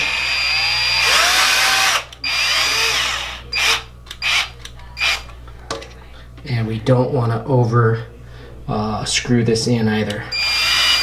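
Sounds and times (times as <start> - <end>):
power drill driving screw: 0.0 - 5.3, 10.3 - 11.0.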